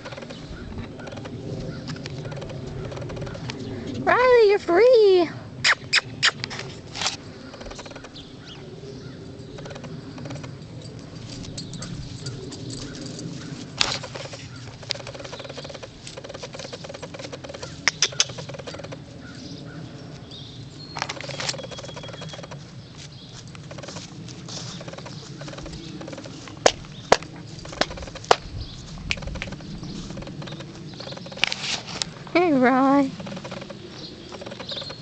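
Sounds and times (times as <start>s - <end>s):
outdoor background noise: 0.0s - 35.0s
short sharp clicks and snaps: 17.1s - 18.9s.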